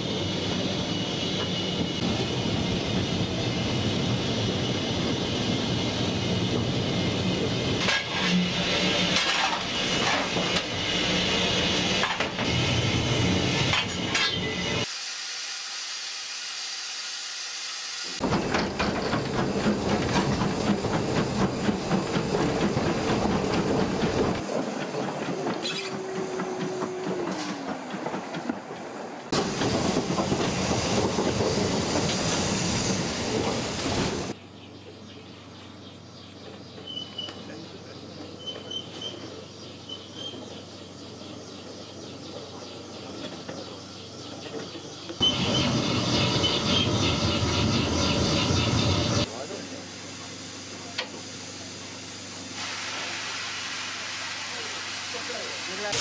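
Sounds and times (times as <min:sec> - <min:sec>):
steam locomotive running: 0:00.0 - 0:34.4, 0:36.4 - 0:56.0
short falling squeal: 0:45.2 - 0:49.0.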